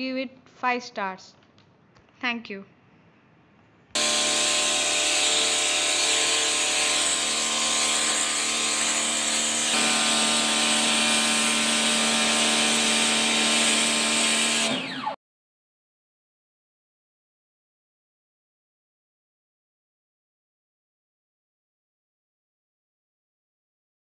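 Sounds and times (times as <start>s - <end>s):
pressure washer motor whine: 4.0s - 15.2s.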